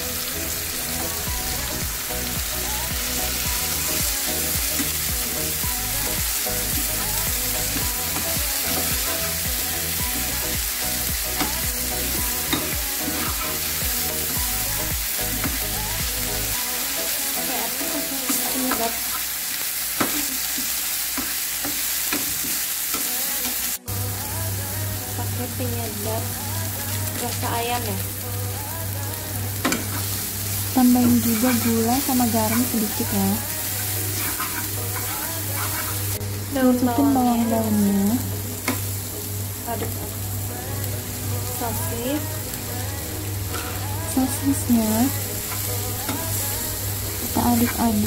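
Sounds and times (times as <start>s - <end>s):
food sizzling in oil: 0.0s - 48.0s
metal spatula scraping pan: 33.8s - 36.2s.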